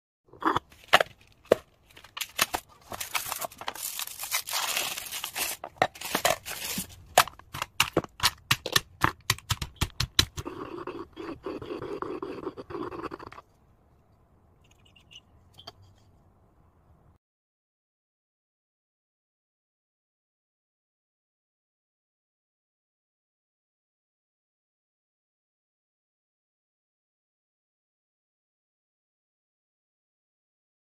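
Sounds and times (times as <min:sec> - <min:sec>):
wrapper crinkling: 0:00.7 - 0:07.4.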